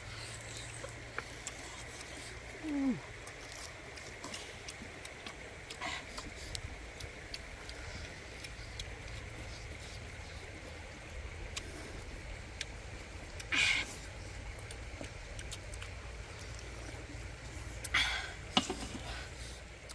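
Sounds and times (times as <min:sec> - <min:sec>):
biting and chewing: 0:00.0 - 0:19.9
running stream water: 0:00.0 - 0:19.9
wet lip smacks: 0:11.5 - 0:17.0.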